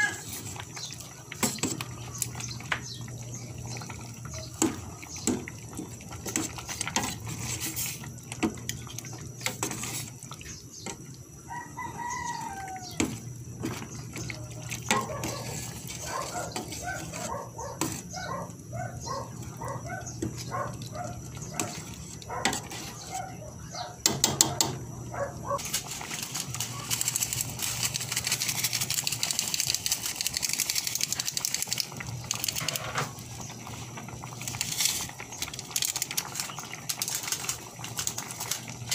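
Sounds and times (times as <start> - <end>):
chickens crowing and clucking: 0.0 - 0.8, 11.3 - 13.5
ladle scraping metal pot: 0.0 - 11.0, 12.3 - 18.2, 19.3 - 23.4
soup bubbling: 0.0 - 24.0, 24.8 - 38.9.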